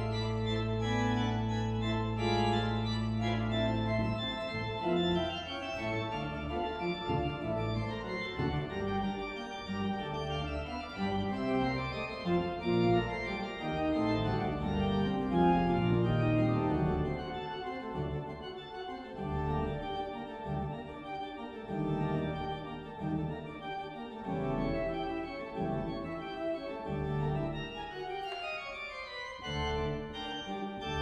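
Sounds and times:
church organ playing chords: 0.0s - 31.0s.

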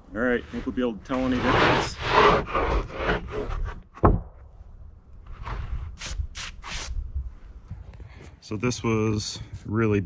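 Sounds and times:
boards scraping together: 0.3s - 4.2s.

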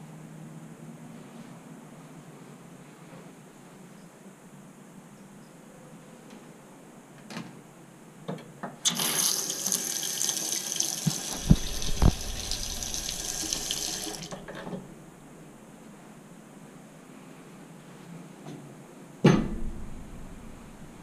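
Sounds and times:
tap water running into sink: 8.9s - 14.8s
dull thumps: 11.1s - 12.8s.

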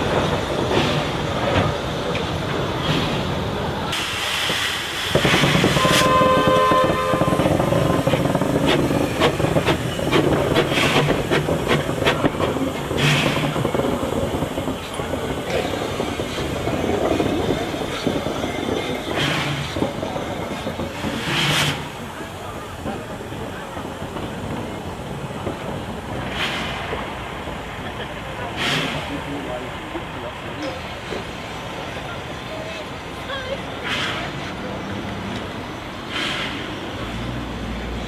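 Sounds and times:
steam locomotive hissing: 0.0s - 38.0s
steam whistle blast: 5.6s - 7.5s.

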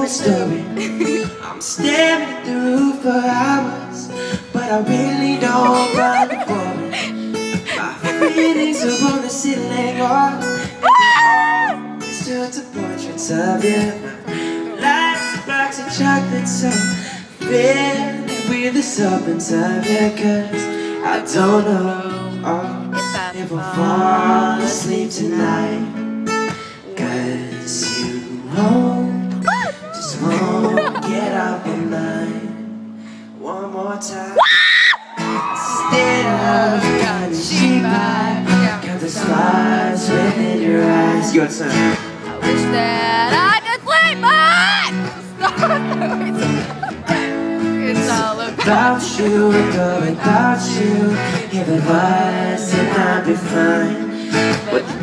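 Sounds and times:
man singing: 0.0s - 26.0s, 26.8s - 32.6s, 33.4s - 34.5s, 35.6s - 55.0s
acoustic guitars strummed: 0.0s - 34.4s, 35.1s - 55.0s
high-pitched cry: 5.4s - 9.3s, 10.8s - 11.8s, 29.4s - 31.1s, 43.3s - 46.8s.

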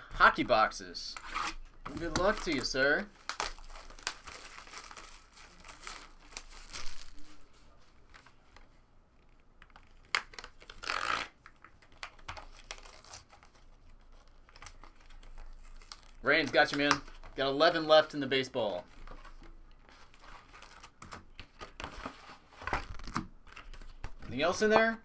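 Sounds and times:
wrapping crinkling: 1.9s - 8.4s, 9.2s - 17.5s.

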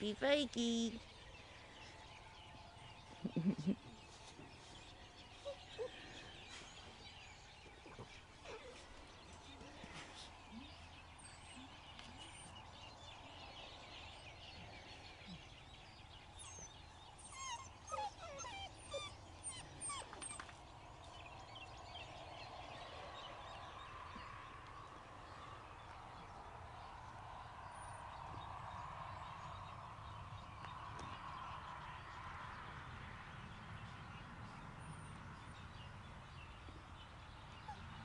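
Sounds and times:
puppies whining and yipping: 5.3s - 7.0s, 7.9s - 9.2s, 16.4s - 20.6s, 37.6s - 38.0s.

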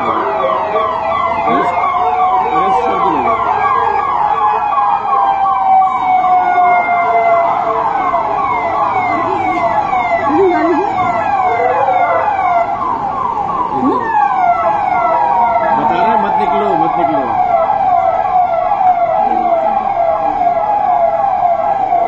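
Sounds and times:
police siren yelp: 0.0s - 22.0s.

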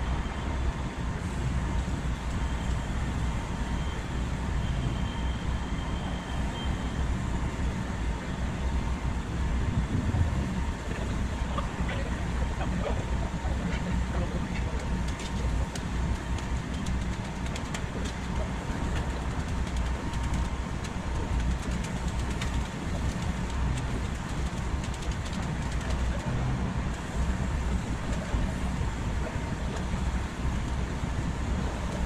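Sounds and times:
low construction rumble: 0.0s - 32.0s.

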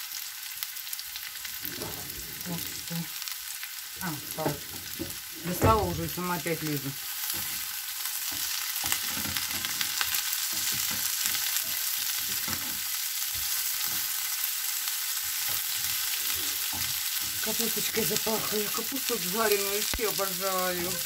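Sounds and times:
cabbage sizzling in a pan: 0.0s - 21.0s
wooden spatula scraping: 1.5s - 3.0s, 4.0s - 6.3s, 7.3s - 14.2s, 15.2s - 21.0s.

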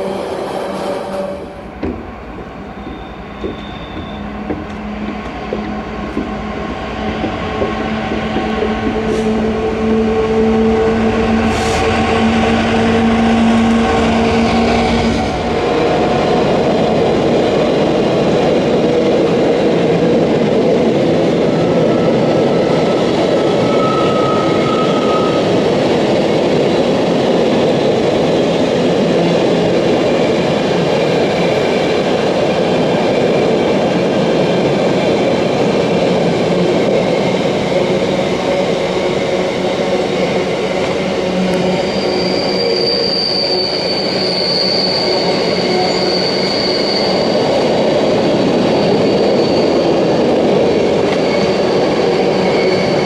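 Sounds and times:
diesel locomotive engine hum: 0.0s - 27.1s, 33.4s - 44.4s.

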